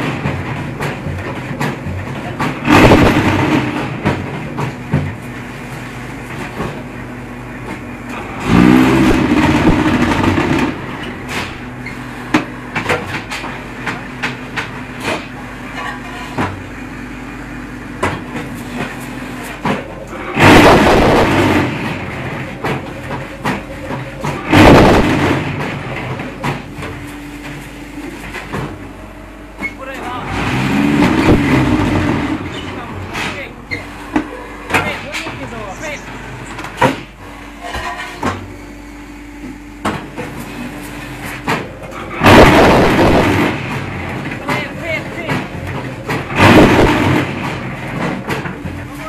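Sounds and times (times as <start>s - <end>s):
rattling vibration bursts: 40.2s - 49.0s.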